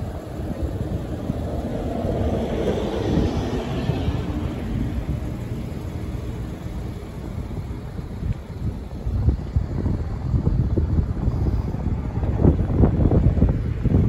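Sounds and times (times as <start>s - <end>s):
vehicle passing: 0.0s - 8.0s
wind rumbling on microphone: 0.0s - 14.0s.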